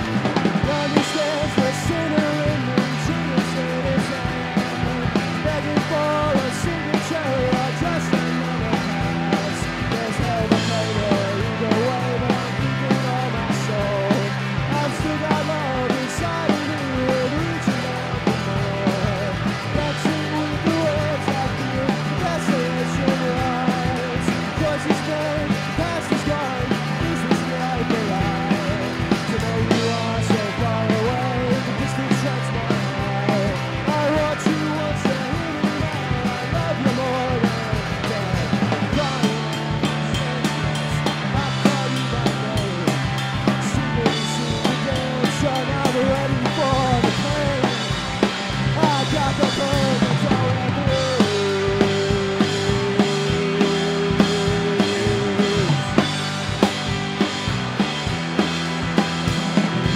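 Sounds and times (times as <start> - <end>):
drum kit beat: 0.0 - 59.9
electric bass: 0.0 - 59.9
electric guitar: 0.0 - 59.9
rock band playing live: 0.0 - 59.9.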